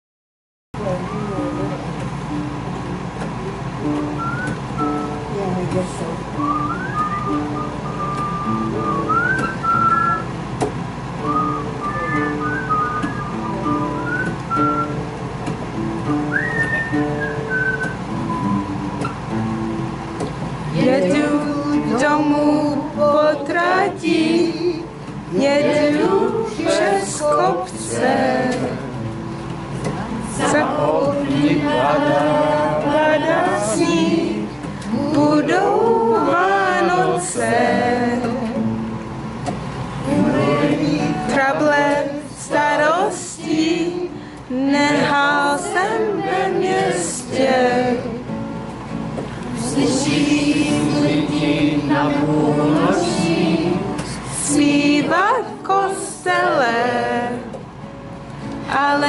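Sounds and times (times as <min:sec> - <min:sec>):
acoustic guitars: 0:00.8 - 0:59.0
woman singing: 0:20.7 - 0:28.9, 0:30.0 - 0:38.6, 0:40.1 - 0:48.3, 0:49.6 - 0:57.6, 0:58.7 - 0:59.0.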